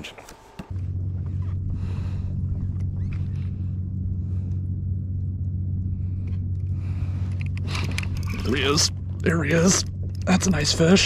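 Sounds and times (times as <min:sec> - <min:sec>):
electric trolling motor humming: 0:00.0 - 0:11.0.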